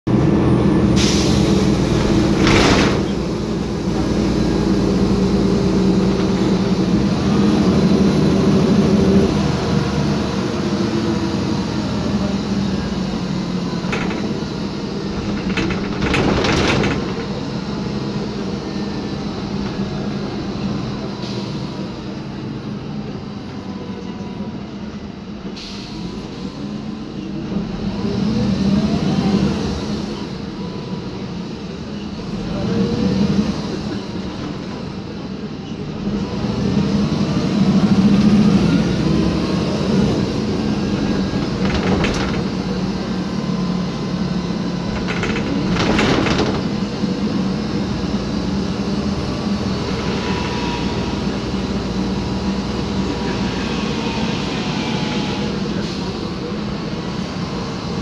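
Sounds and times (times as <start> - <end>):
bus engine running: 0.1 - 58.0
suspension knocking and rattling: 13.7 - 17.9, 40.8 - 43.1, 44.4 - 47.1.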